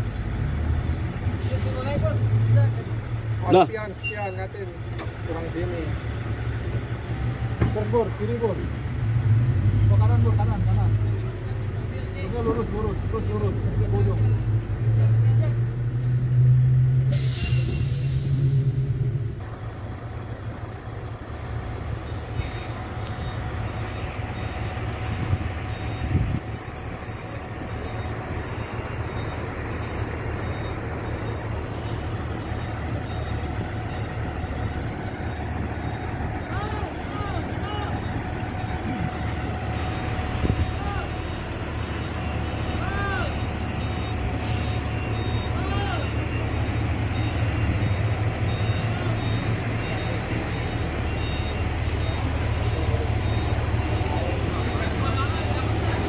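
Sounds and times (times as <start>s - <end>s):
fire truck diesel rumble: 0.0s - 56.0s
short high-pitched beeps: 25.2s - 26.4s, 27.0s - 56.0s.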